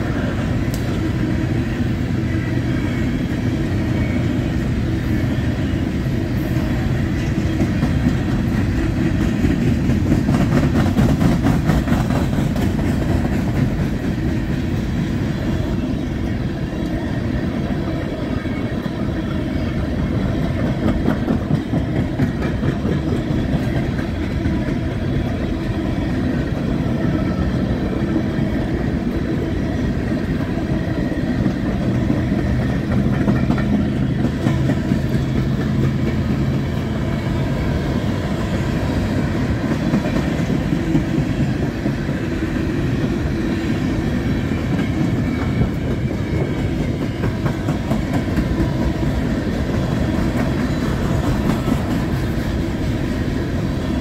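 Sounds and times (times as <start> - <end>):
freight train wheels rumbling on rails: 0.0 - 54.0.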